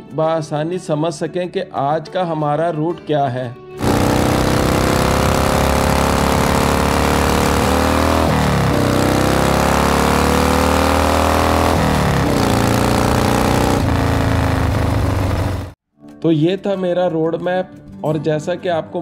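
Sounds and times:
motorcycle engine accelerating: 0:03.8 - 0:15.8.

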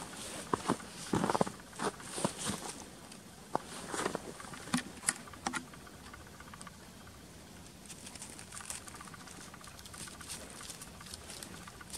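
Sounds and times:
footsteps crunching in snow: 0:00.0 - 0:02.9, 0:03.5 - 0:04.4.

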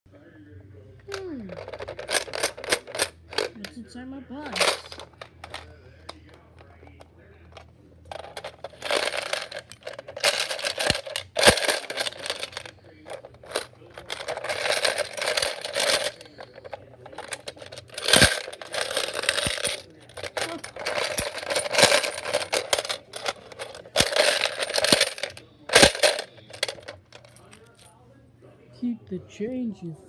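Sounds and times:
coins rattling inside toy: 0:01.1 - 0:03.8, 0:04.4 - 0:06.8, 0:07.5 - 0:27.8
coins clinking as they fall: 0:01.5 - 0:03.6, 0:04.5 - 0:05.6, 0:08.1 - 0:27.5.

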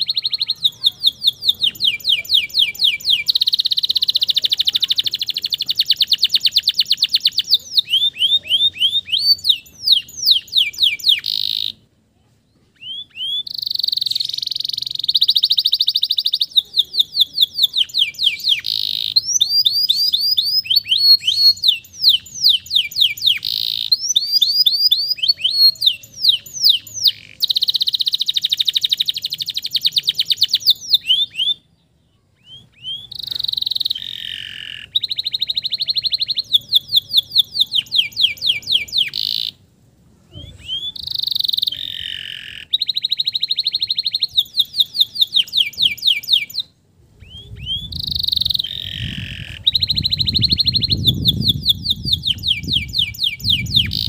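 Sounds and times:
canary singing trills: 0:00.0 - 0:11.9, 0:12.6 - 0:54.0.

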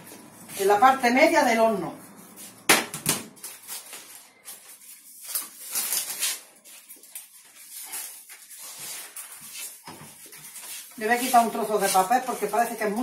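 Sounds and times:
baking paper crinkling: 0:03.3 - 0:13.0.

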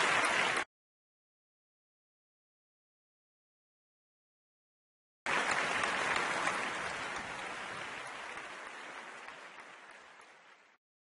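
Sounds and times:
crowd applauding: 0:00.0 - 0:00.7, 0:05.3 - 0:10.8.

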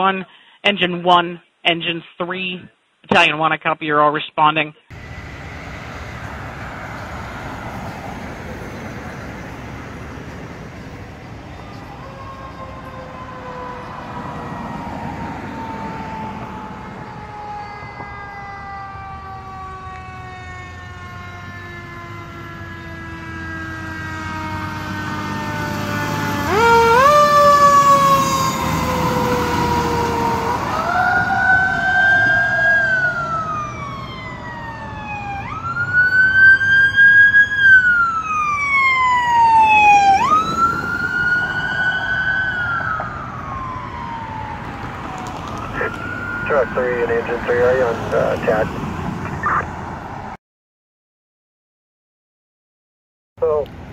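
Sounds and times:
truck engine rumbling: 0:04.9 - 0:50.0
fire truck siren winding: 0:11.7 - 0:46.8.

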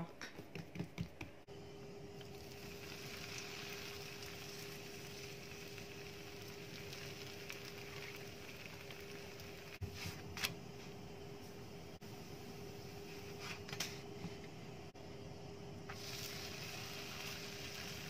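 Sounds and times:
tortilla hissing on griddle: 0:15.9 - 0:18.0.

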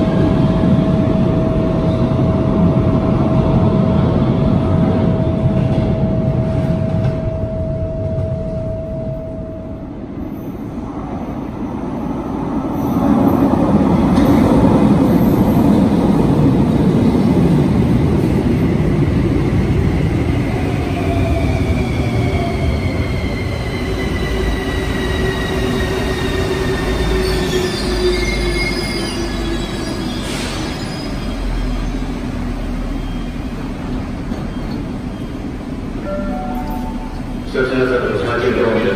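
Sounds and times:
train rumble: 0:00.0 - 0:38.9
train brakes whining: 0:26.8 - 0:32.1.

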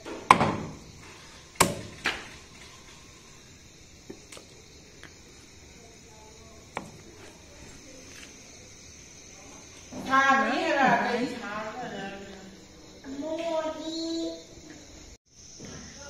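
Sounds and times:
cleaver chopping on wooden block: 0:01.6 - 0:02.2.

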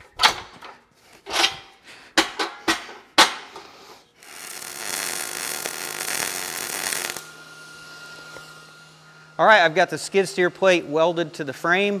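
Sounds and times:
metal clanks: 0:00.0 - 0:03.6
welder arc crackling: 0:04.2 - 0:07.5.

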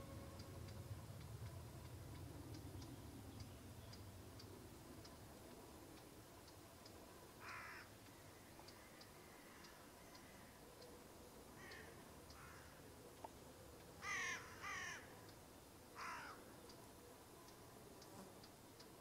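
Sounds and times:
faint high ticks: 0:00.0 - 0:19.0
distant crows cawing: 0:07.4 - 0:10.8, 0:11.5 - 0:12.9, 0:14.0 - 0:16.7.

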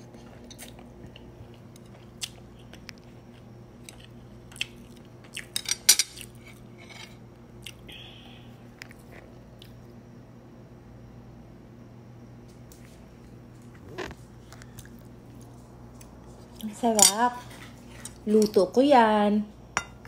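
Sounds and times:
chewing noodles: 0:00.0 - 0:05.6.

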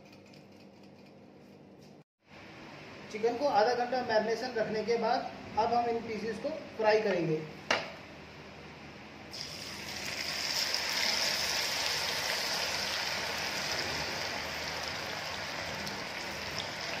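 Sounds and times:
oil sizzling and bubbling: 0:09.3 - 0:17.0.

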